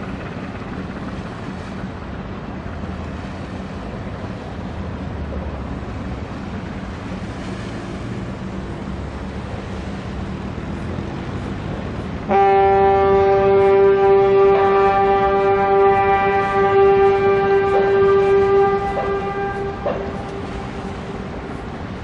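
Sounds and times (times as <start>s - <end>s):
ship engine drone: 0.0s - 22.0s
water rushing along hull: 0.0s - 22.0s
ship's horn blast: 12.2s - 22.0s.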